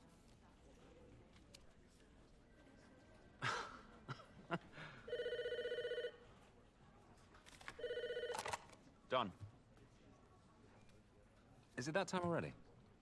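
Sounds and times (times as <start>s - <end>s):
telephone ringing: 5.1s - 6.2s, 7.8s - 8.6s.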